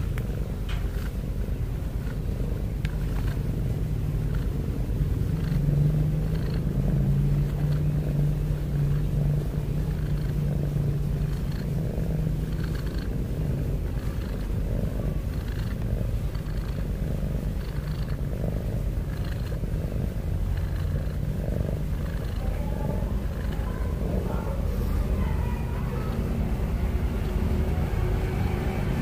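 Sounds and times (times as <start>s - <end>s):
cat purring: 0.0s - 29.0s.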